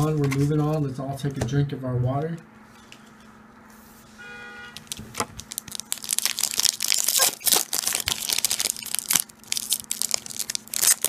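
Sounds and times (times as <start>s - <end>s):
foil wrapper crinkling and tearing: 4.8s - 11.0s.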